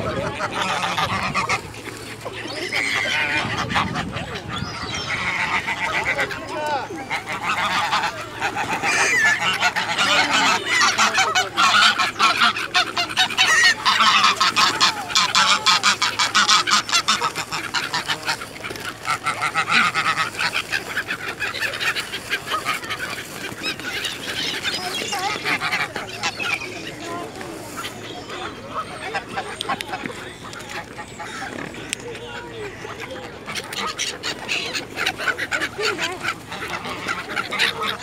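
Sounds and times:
geese honking: 0.0s - 38.0s
pigeon wings flapping: 16.6s - 25.6s.

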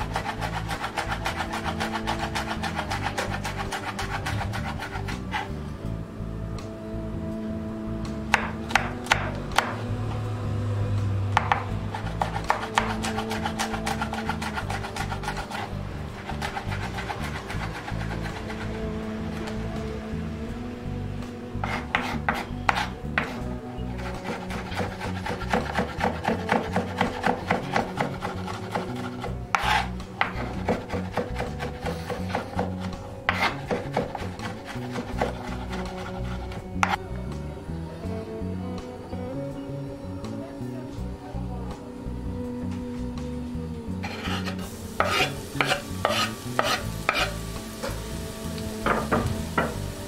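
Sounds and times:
knife chopping on cutting board: 0.1s - 5.4s, 11.4s - 15.6s, 21.6s - 23.4s, 24.2s - 36.1s, 44.0s - 48.0s.

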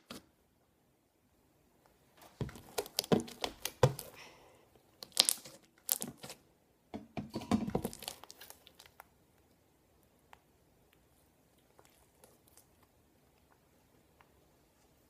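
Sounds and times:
wet slime crackling and popping: 2.3s - 4.2s, 4.9s - 6.4s, 7.4s - 9.6s.

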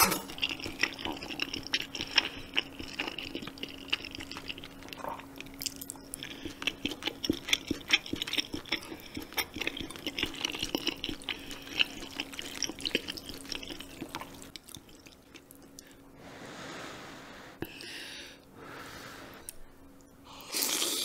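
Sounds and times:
wet chewing and lip-smacking: 0.1s - 15.9s.

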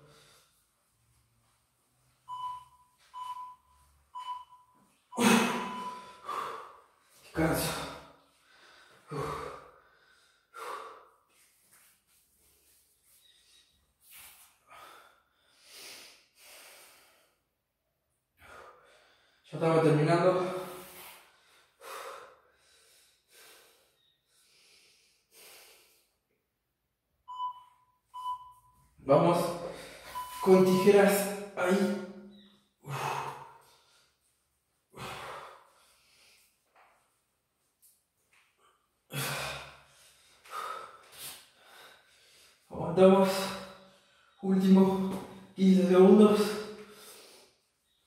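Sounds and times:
man breathing heavily: 0.0s - 1.5s, 5.2s - 17.5s, 18.4s - 19.5s, 20.4s - 26.2s, 29.6s - 31.1s, 32.7s - 36.9s, 38.9s - 44.4s, 46.3s - 48.0s
timer beeps: 2.3s - 6.2s, 27.3s - 28.9s, 29.8s - 31.3s, 32.3s - 32.6s.

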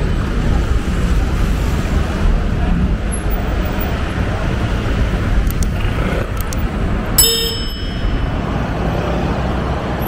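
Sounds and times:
city street traffic: 0.0s - 10.0s
sharp metallic clang: 7.2s - 8.6s.

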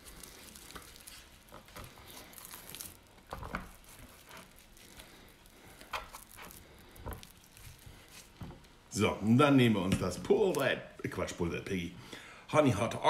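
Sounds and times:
wet squishing and patting on meat: 0.0s - 8.8s.

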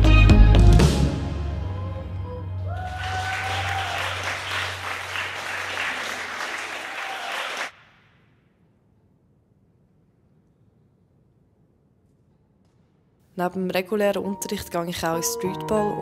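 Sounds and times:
audience applauding: 2.7s - 7.8s.

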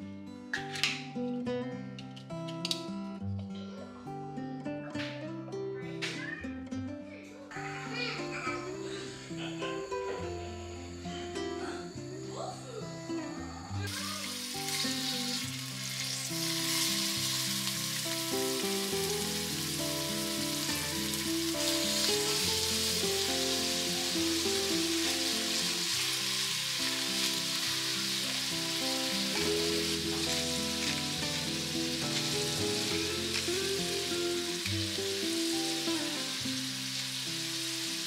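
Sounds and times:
soft background music: 0.0s - 38.0s
shrimp sizzling in hot oil: 13.9s - 38.0s.

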